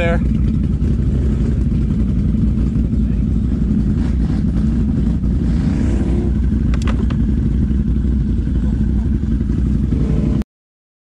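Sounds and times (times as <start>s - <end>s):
atv engine idling: 0.0s - 10.4s
sharp clicks of clatter: 6.6s - 7.3s.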